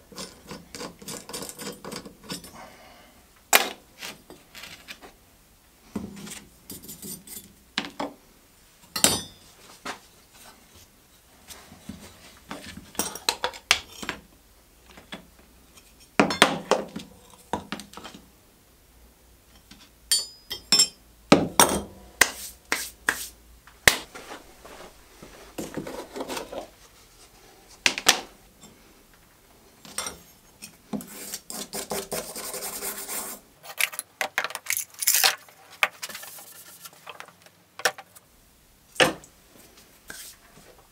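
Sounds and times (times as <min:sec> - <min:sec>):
scraping and rubbing: 0:24.0 - 0:27.4.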